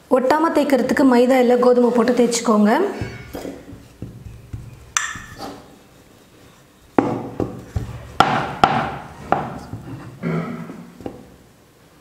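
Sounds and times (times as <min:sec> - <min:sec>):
wood-on-wood knocks: 0:03.0 - 0:05.7, 0:06.9 - 0:10.2, 0:11.0 - 0:11.4.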